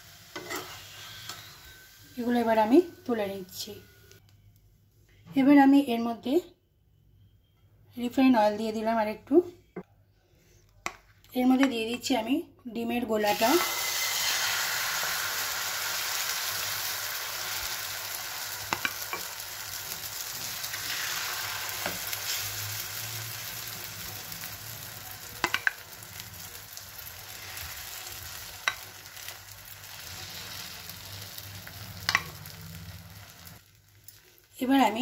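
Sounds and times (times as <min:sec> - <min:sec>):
egg sizzling in oil: 0:00.0 - 0:03.2, 0:13.3 - 0:34.6
spatula tapping a pan: 0:18.7 - 0:19.3, 0:25.4 - 0:25.8.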